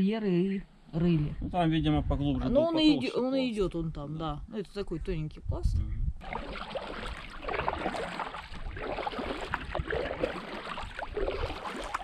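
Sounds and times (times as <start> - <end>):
paddle splashes and drips: 6.2 - 12.0
water splashing and gurgling: 6.2 - 12.0.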